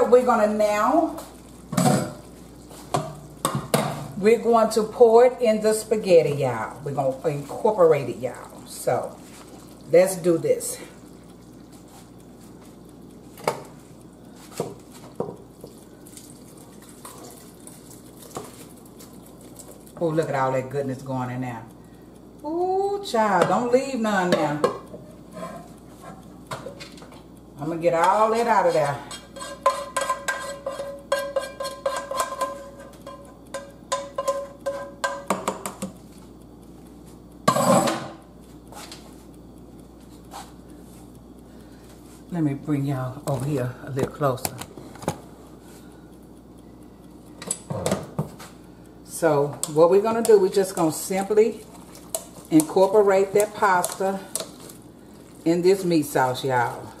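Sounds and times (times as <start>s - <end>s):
metal pan clanking: 29.1s - 35.6s
metal skillet taps ringing: 29.7s - 35.8s.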